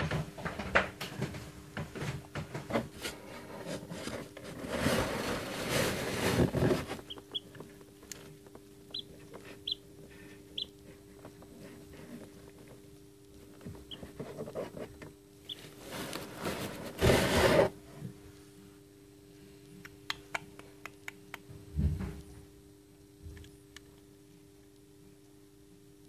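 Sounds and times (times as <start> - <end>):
steady low hum: 0.0 - 26.0
chick tapping and scratching shell: 6.5 - 12.8, 13.4 - 16.3
chick peeping: 6.9 - 7.7, 8.8 - 10.9, 13.8 - 14.3.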